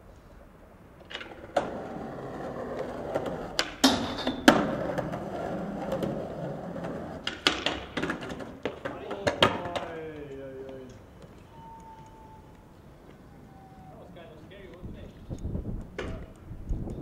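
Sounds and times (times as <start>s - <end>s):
skateboard wheels rolling on concrete: 0.0s - 17.0s
skateboard clacks: 1.0s - 13.4s, 15.7s - 17.0s
skateboard scrape: 1.2s - 9.0s.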